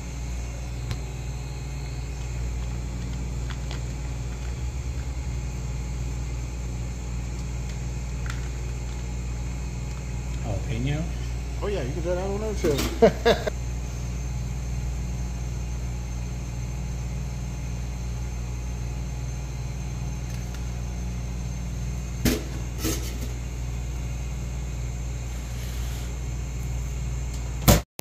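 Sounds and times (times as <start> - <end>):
kitchen equipment humming: 0.0 - 27.8.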